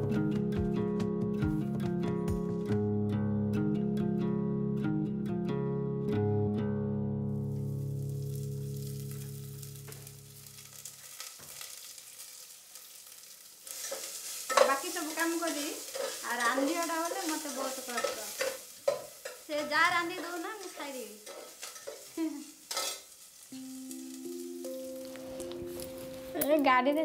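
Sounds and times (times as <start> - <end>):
food sizzling in a pan: 7.3 - 27.0.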